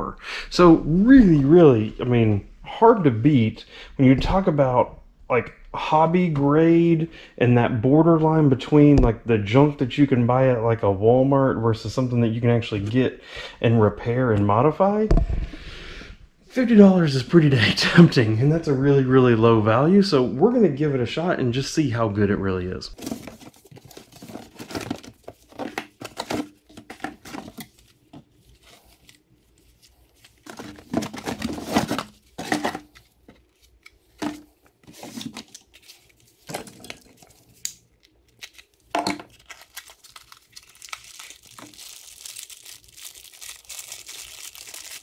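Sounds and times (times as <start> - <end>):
plastic bags crinkling: 23.0 - 34.2, 34.9 - 45.0
cardboard packaging rustling and tearing: 23.0 - 45.0.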